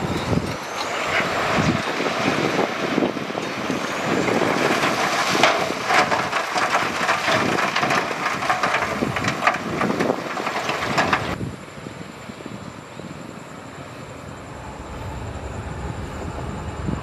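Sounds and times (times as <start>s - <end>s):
heavy machine rumble: 0.0s - 11.4s, 13.2s - 17.0s
loose rock clattering and crunching: 0.5s - 11.4s.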